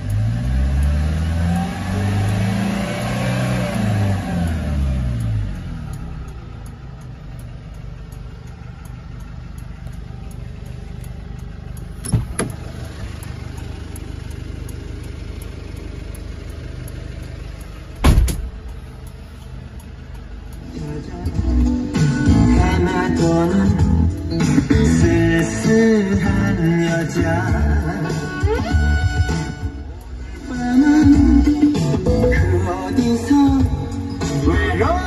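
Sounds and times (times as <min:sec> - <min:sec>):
diesel engine idling: 0:00.0 - 0:35.0
loud thump: 0:18.0 - 0:18.6.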